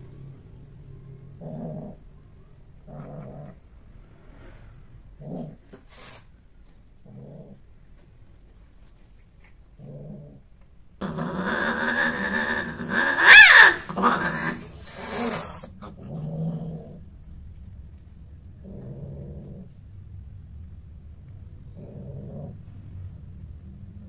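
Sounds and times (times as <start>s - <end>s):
cat growling: 1.1s - 2.2s, 2.8s - 6.2s, 7.0s - 7.7s, 9.4s - 17.2s, 18.5s - 19.8s, 21.6s - 22.8s
cat yowling scream: 11.4s - 14.6s.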